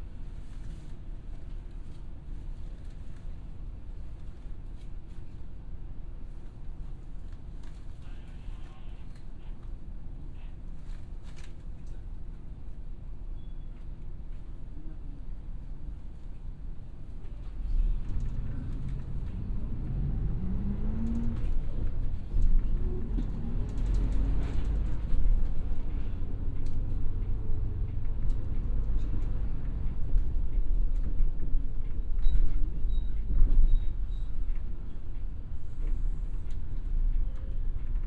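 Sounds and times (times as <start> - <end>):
bus diesel engine rumbling: 14.6 - 38.0
bus body creaking and rattling: 16.0 - 38.0.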